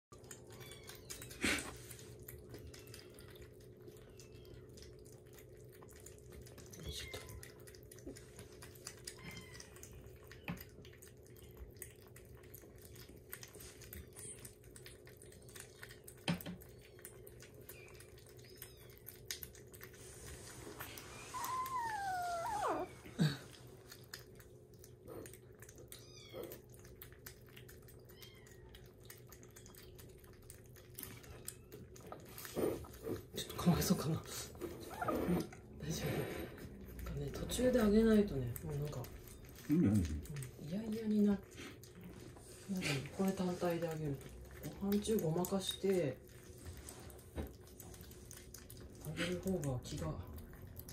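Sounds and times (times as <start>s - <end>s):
kittens lapping food: 0.1s - 50.9s
kitten crying: 9.2s - 9.9s, 21.1s - 23.2s, 26.0s - 26.6s, 28.1s - 28.7s.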